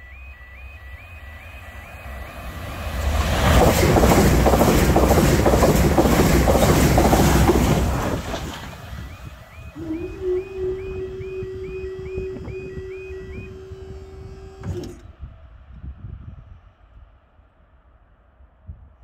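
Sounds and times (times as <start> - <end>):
crossing alarm chirps: 0.0 - 14.5
steady hum of barriers rising: 0.1 - 12.2
train wheels rushing on rails: 1.5 - 12.3.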